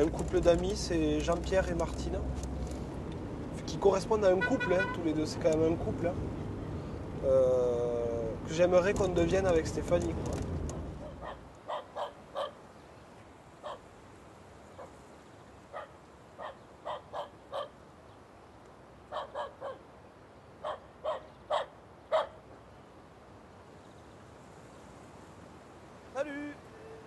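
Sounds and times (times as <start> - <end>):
dog barking: 11.0 - 12.6, 13.6 - 13.9, 14.8 - 15.0, 15.7 - 17.8, 19.1 - 19.8, 20.6 - 22.4.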